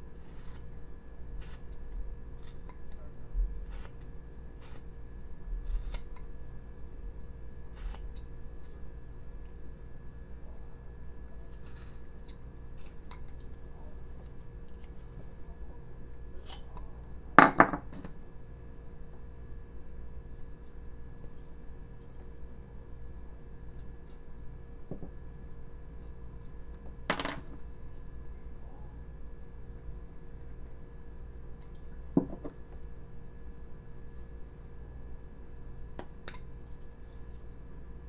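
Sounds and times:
room hum: 0.0 - 38.0
knife cutting and scraping wood: 0.1 - 0.7, 1.4 - 3.0, 3.6 - 5.0, 5.6 - 6.6, 7.7 - 8.8, 11.5 - 13.6, 16.4 - 16.8
tools knocking on wooden workbench: 17.4 - 18.1, 24.9 - 25.1, 32.2 - 32.6.

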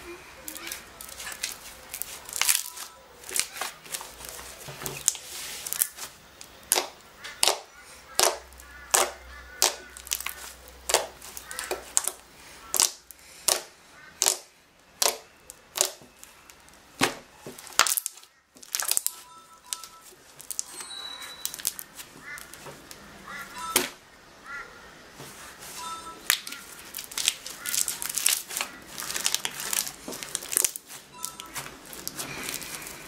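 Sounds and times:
slime popping as kneaded: 1.0 - 4.0, 4.9 - 19.1, 26.3 - 32.6.

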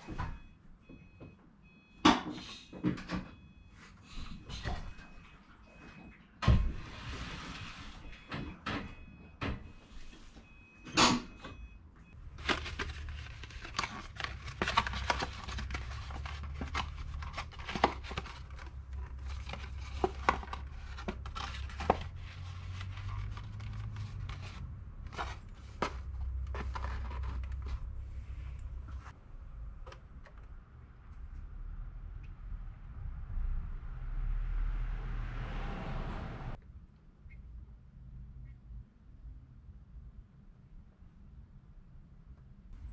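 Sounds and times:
paper crinkling and rustling: 12.2 - 28.2.

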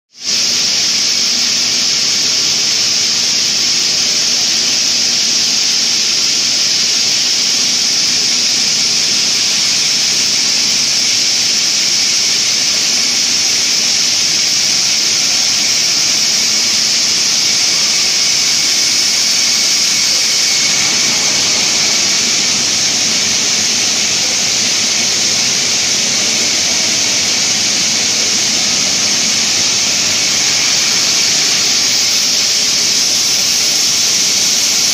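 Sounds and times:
wire drawing machine hissing: 0.1 - 34.9
low hum: 15.0 - 33.4.

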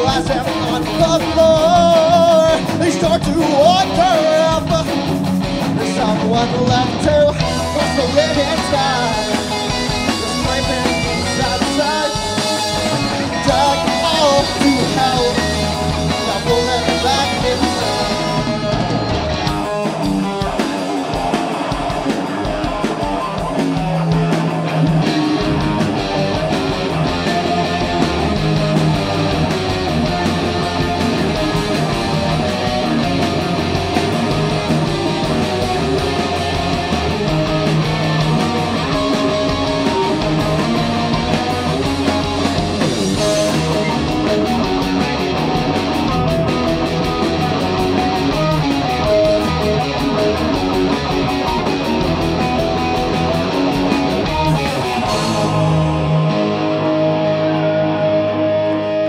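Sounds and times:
drum kit: 0.0 - 59.0
electric guitars: 0.0 - 59.0
live rock band playing: 0.0 - 59.0.

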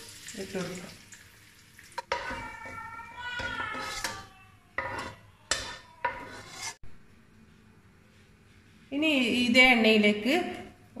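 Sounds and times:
metal skimmer squeaky scrape: 3.4 - 6.8.

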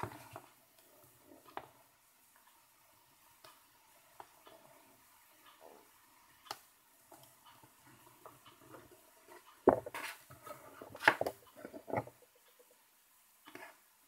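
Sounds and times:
tablet case knocking: 9.7 - 10.0.

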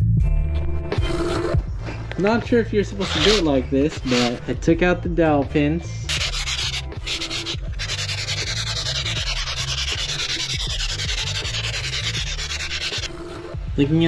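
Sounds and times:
background music: 0.0 - 14.0
abrasive pad scrubbing metal: 2.9 - 4.4, 6.1 - 13.1.

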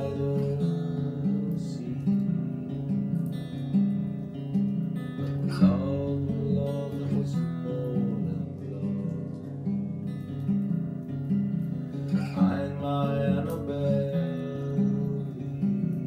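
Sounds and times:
acoustic guitar picking: 0.0 - 16.0.

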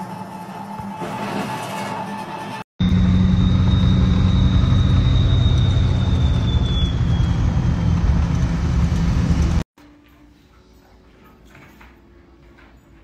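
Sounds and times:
thin high whine: 2.8 - 8.0
engine and road noise: 2.8 - 9.6.

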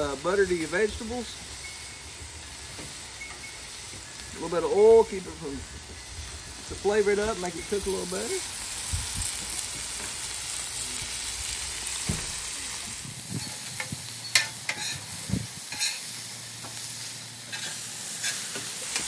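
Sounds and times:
vegetables sizzling on griddle: 0.0 - 19.0
spatula scraping and tapping griddle: 13.3 - 16.9, 17.5 - 19.0.

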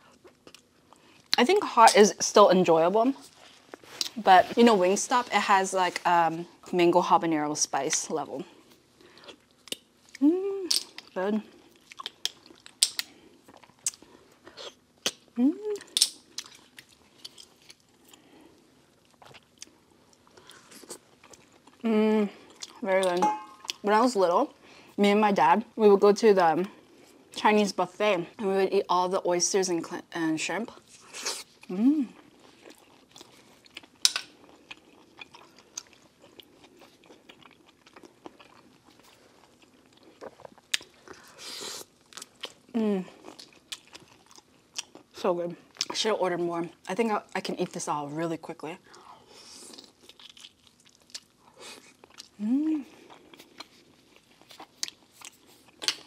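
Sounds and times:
chewing: 8.6 - 23.8, 30.9 - 45.1, 48.9 - 56.0
wet chewing: 9.0 - 18.3
person humming mm: 10.2 - 10.8, 15.4 - 15.9, 21.8 - 22.3, 31.7 - 32.2, 52.4 - 53.0.

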